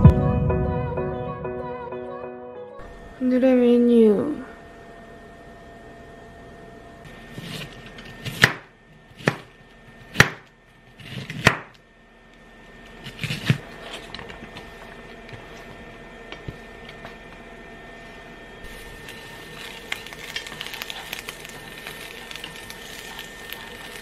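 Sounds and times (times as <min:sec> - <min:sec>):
knife slicing onion on board: 0:07.3 - 0:11.8.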